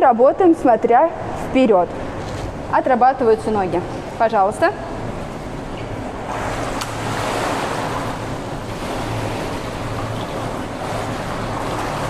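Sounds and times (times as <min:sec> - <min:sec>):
low steady hum: 0:00.0 - 0:12.0
swimmer kicking and splashing: 0:06.2 - 0:12.0.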